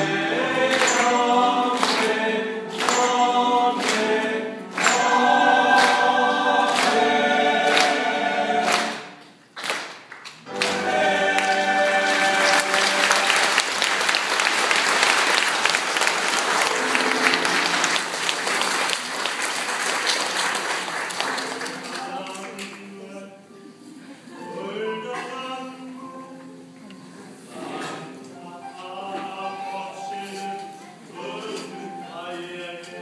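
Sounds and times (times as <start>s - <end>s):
choir singing: 0.0s - 9.3s, 10.5s - 14.7s, 27.4s - 33.0s
congregation applauding: 0.0s - 22.8s.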